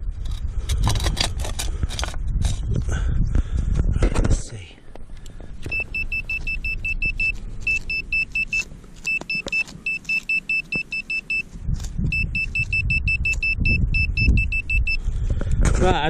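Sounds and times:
metal detector beeping: 5.6s - 15.1s.

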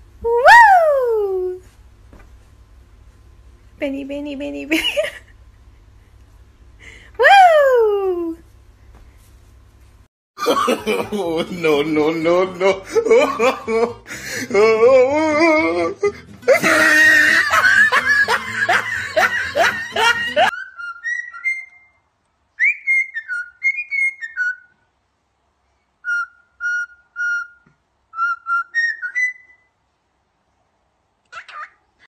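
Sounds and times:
high wavering voice-like sound: 7.2s - 8.4s
whistled tune: 20.6s - 22.0s, 22.6s - 24.8s, 26.0s - 29.7s.

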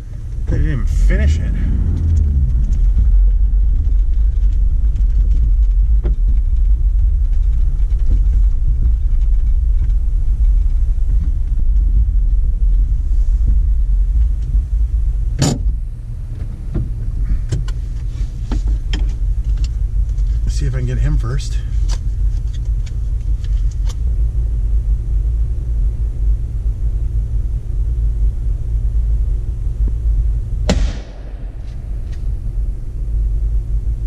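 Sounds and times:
engine and tyres rumbling: 0.0s - 34.0s
sharp knock: 30.7s - 31.9s.

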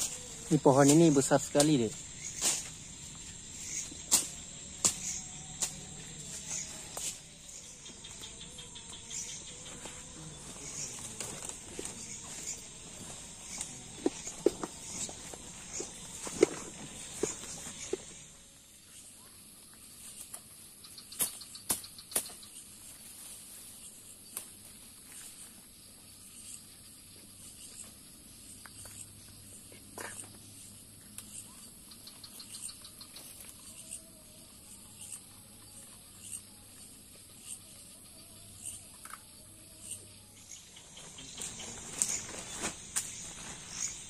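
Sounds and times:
gear clicks and undergrowth rustles: 0.0s - 18.4s, 41.0s - 44.0s
rapid insect ticking: 0.0s - 23.1s, 23.8s - 44.0s
insect chorus trilling: 0.0s - 44.0s.

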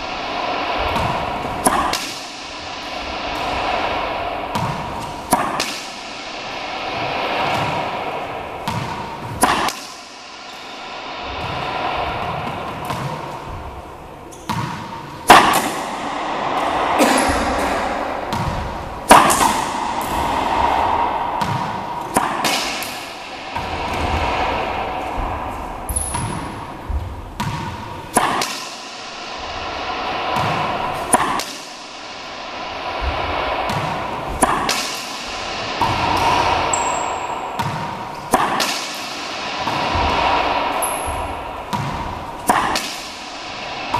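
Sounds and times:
racquet hitting ball: 0.0s - 43.9s
ball bouncing on hardwood floor: 14.4s - 14.9s, 18.3s - 20.7s, 21.4s - 23.0s, 41.1s - 42.1s.

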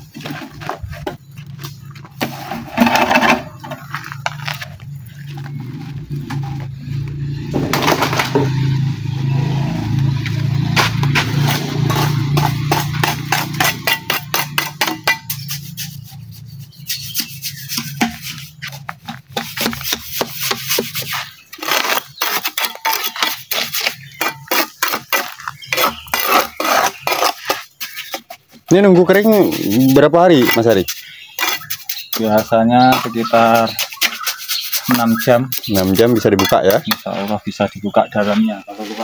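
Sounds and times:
trowel scraping wet concrete: 9.6s - 39.0s.

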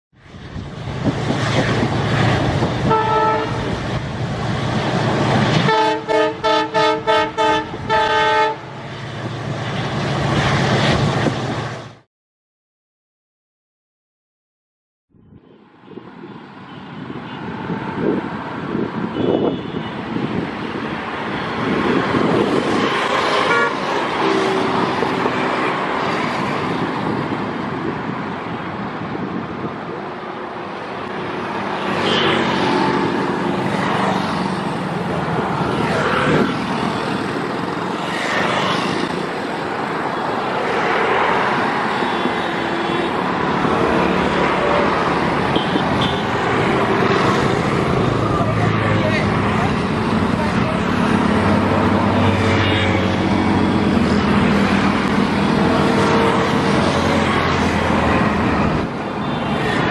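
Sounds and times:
train horn: 2.8s - 3.8s, 5.6s - 8.8s, 23.3s - 24.5s.

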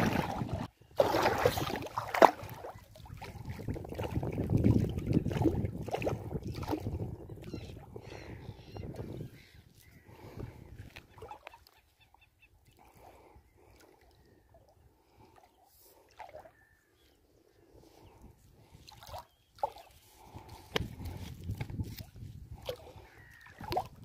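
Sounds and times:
fish splashing in water: 0.0s - 7.0s, 18.9s - 20.4s, 22.0s - 24.0s.

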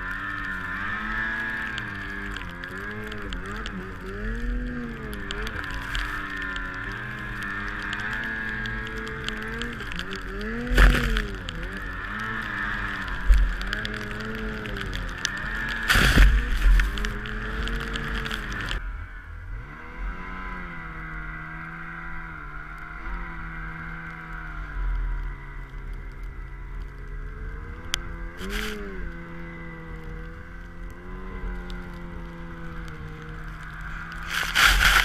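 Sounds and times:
snowmobile engine: 0.0s - 35.0s
snow spray rushing: 34.2s - 35.0s.

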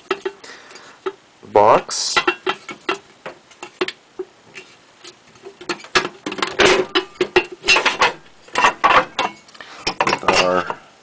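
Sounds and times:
metal box cover clicks and rattles: 2.1s - 4.0s, 5.5s - 10.8s.

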